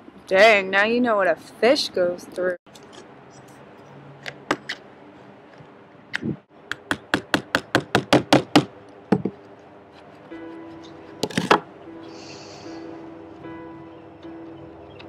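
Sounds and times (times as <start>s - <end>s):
hammer tapping on wooden deck: 6.7s - 9.4s.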